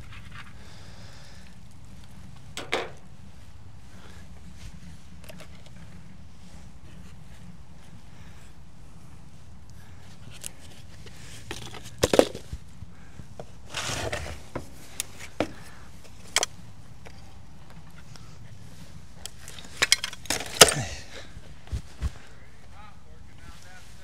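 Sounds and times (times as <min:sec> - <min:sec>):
junk clattering and scraping: 0:19.4 - 0:21.2.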